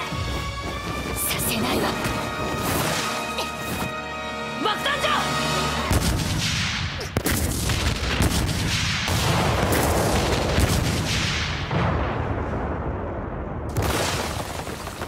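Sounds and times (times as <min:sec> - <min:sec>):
rumbling explosions: 0:05.9 - 0:15.0.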